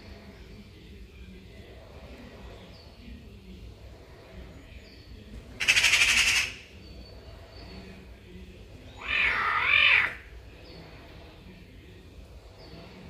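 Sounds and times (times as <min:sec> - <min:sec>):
caracal calling: 0:05.6 - 0:06.7, 0:08.9 - 0:10.3.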